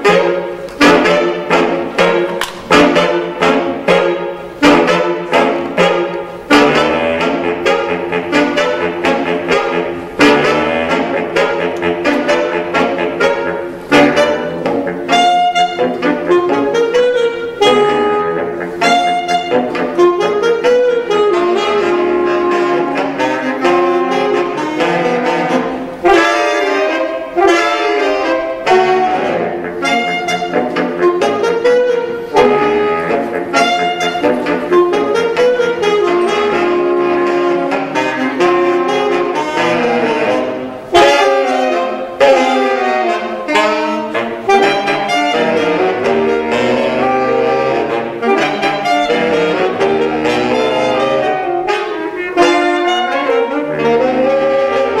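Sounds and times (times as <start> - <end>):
saxophone quartet playing jazz: 0.0 - 55.0.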